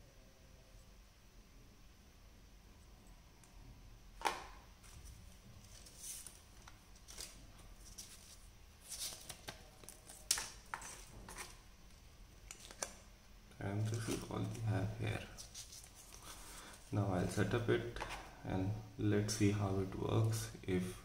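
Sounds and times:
cardboard and paper rustling: 4.8s - 11.6s.

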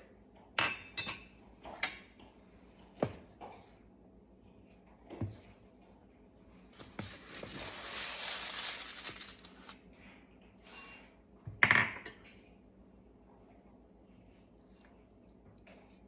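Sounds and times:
dry ingredients poured into bowl: 7.3s - 9.8s.

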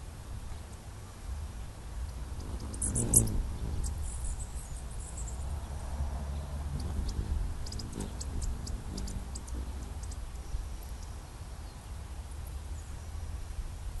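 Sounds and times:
hummingbird chipping: 2.1s - 5.5s, 6.6s - 11.2s.

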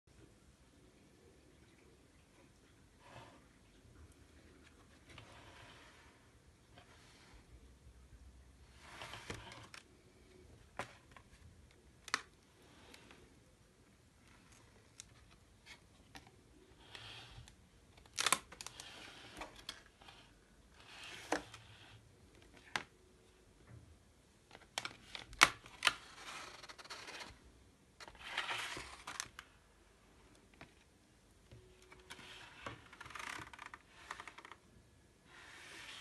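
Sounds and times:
book pages turning: 8.8s - 10.0s, 14.3s - 23.0s, 24.5s - 27.4s, 28.0s - 29.6s, 31.5s - 34.6s.

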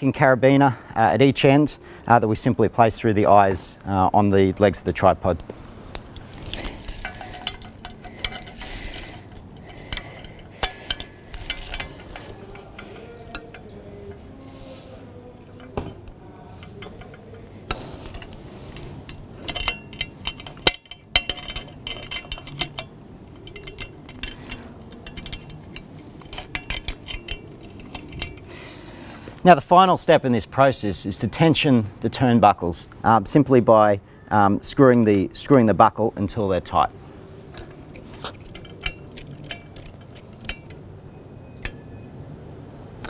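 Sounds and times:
metal straps and carabiners clinking: 4.6s - 29.5s, 36.7s - 42.2s.

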